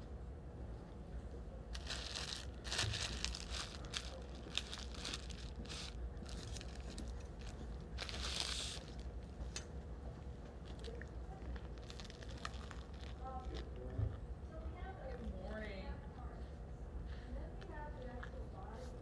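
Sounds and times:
bread crust crackling: 1.8s - 9.2s, 10.7s - 13.9s.

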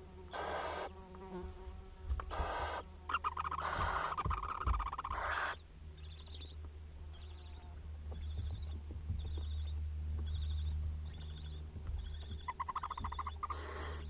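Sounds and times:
steady low hum: 0.0s - 14.0s
owlets hissing begging calls: 0.3s - 0.9s, 2.3s - 5.6s, 12.1s - 14.0s.

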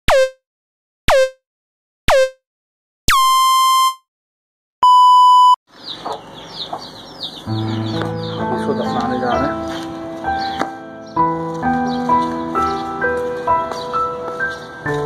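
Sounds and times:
short electronic tones: 0.1s - 0.4s, 1.1s - 1.4s, 2.1s - 2.4s, 3.1s - 4.0s, 4.8s - 5.6s
steady electronic beep: 0.1s - 0.4s, 1.1s - 1.4s, 2.1s - 2.4s, 3.1s - 4.0s, 4.8s - 5.6s
chicks peeping: 5.7s - 11.2s, 11.9s - 14.8s
background music: 7.4s - 15.0s.

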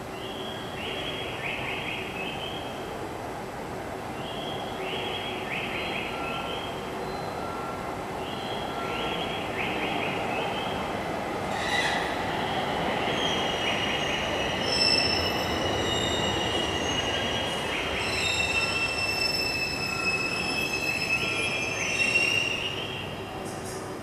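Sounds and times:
low train running noise: 0.0s - 24.0s
train wheels squealing on rails: 6.0s - 10.8s, 11.4s - 24.0s.

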